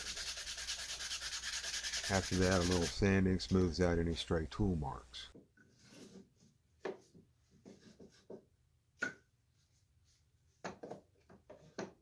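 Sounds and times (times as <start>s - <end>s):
sanding wood by hand: 0.0s - 4.1s.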